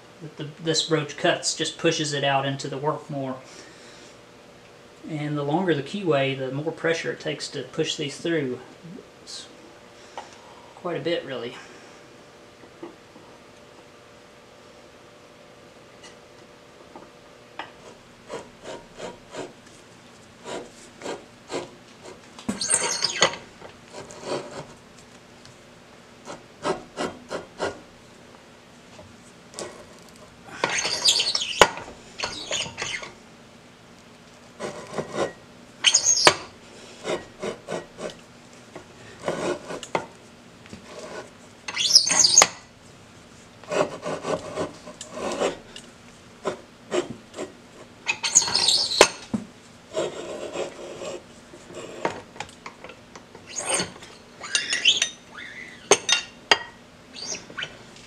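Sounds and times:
rasping metal scrapes: 20.4 - 24.7, 30.6 - 33.1, 39.2 - 39.9, 43.7 - 45.6, 53.4 - 55.2.

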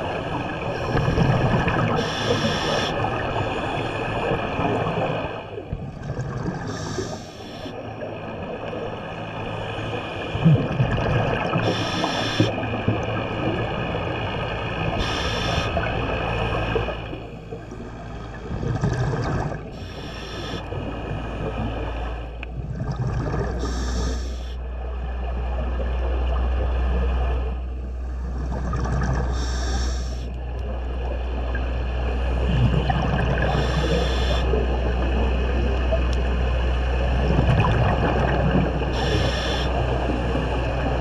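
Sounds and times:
steady low hum: 0.0 - 41.0
diver inhaling through regulator: 2.0 - 3.0, 6.6 - 7.7, 11.6 - 12.5, 15.0 - 15.9, 19.7 - 20.7, 23.6 - 24.6, 29.3 - 30.3, 33.4 - 34.6, 38.9 - 39.8.

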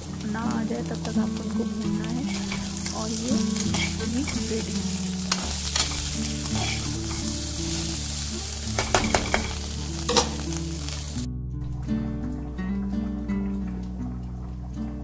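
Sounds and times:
potatoes sizzling in oil: 0.0 - 11.3
soft background music: 0.0 - 15.0
spatula clicking against pan: 2.3 - 7.4, 8.8 - 10.4.

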